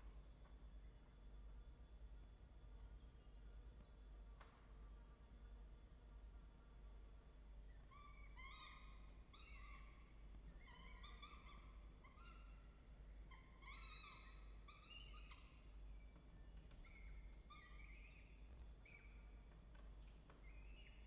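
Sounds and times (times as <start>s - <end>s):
falcons chirping faintly: 7.4s - 21.0s.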